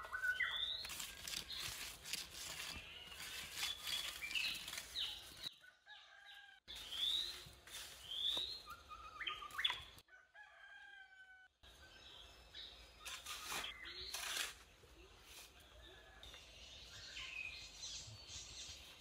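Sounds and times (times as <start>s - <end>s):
small birds chirping: 0.0s - 5.7s, 6.7s - 10.0s
rooster crowing: 10.1s - 11.5s.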